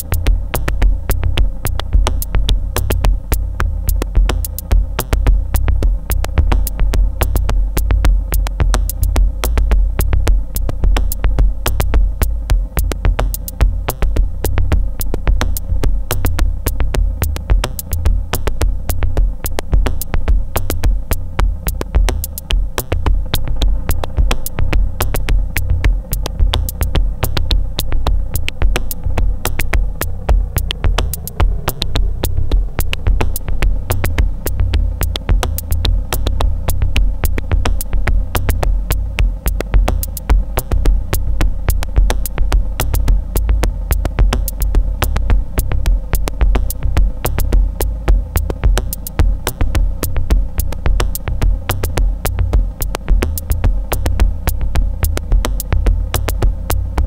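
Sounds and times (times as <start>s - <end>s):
dark minimal electronic music: 0.0s - 57.0s
deep bass: 0.0s - 57.0s
fast sharp ticks: 0.0s - 57.0s.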